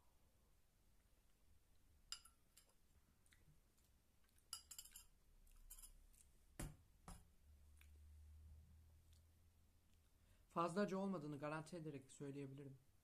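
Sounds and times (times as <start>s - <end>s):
fork clinking on ceramic bowl: 2.1s - 2.7s, 4.5s - 6.0s.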